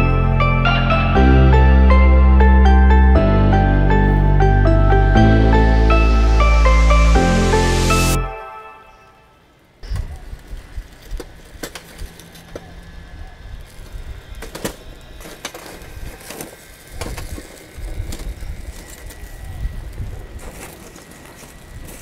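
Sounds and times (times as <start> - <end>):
wind rumbling on microphone: 9.8 - 12.1, 15.8 - 20.8
charcoal fire crackling: 9.8 - 12.9, 13.5 - 22.0.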